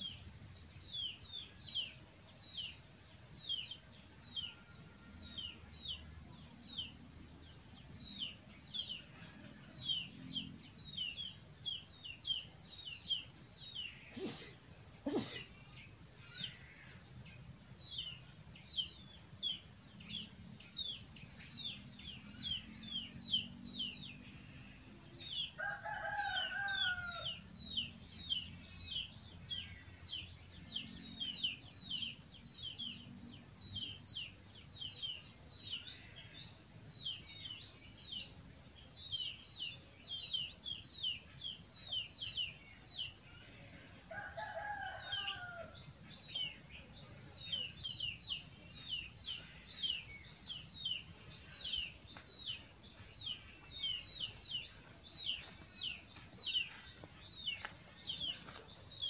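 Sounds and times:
rooster crowing: 25.6s - 27.4s, 44.1s - 45.8s.

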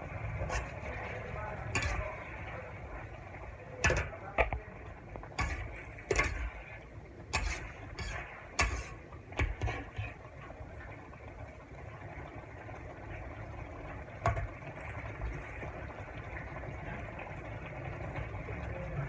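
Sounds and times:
frying hiss: 0.0s - 19.0s
metal spatula scraping wok: 0.3s - 2.7s, 5.3s - 10.3s.

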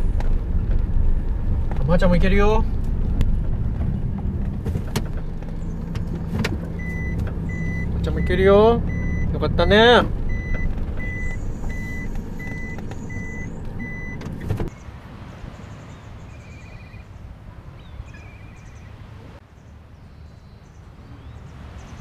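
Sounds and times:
van engine running: 0.0s - 17.0s
reverse warning beeps: 6.8s - 14.2s.

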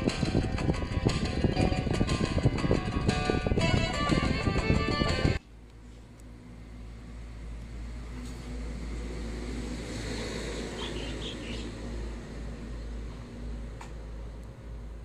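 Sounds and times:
background music: 0.0s - 5.4s
low rumble with hiss: 0.0s - 10.0s.

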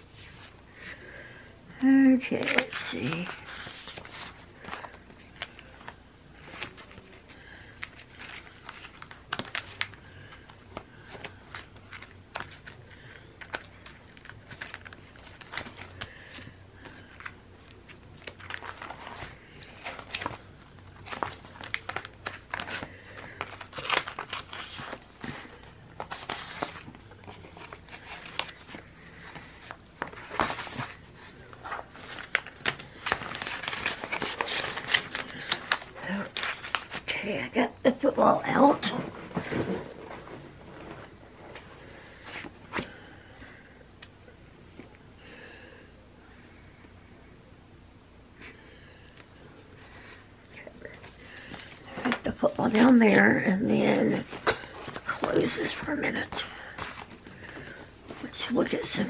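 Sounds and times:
plastic pages crinkling: 2.1s - 37.3s, 54.2s - 59.0s.

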